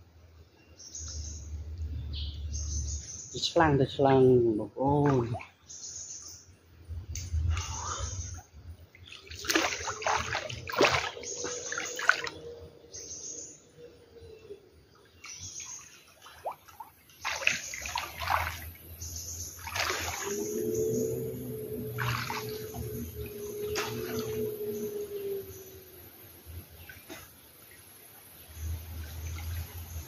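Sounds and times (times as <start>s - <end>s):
water splashing and sloshing: 2.8s - 13.7s, 14.8s - 30.0s
steady droning tone: 18.8s - 26.8s.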